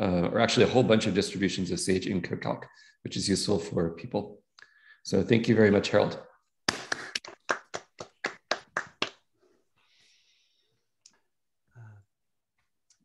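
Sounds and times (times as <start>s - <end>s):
hand clapping: 6.6s - 9.3s.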